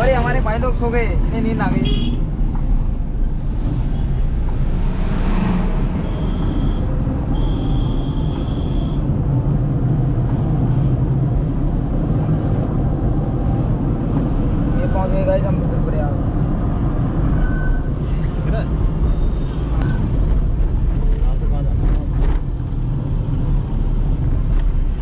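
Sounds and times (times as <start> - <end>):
motorcycle and traffic noise: 0.0 - 25.0
vehicle passing whoosh: 1.4 - 7.2.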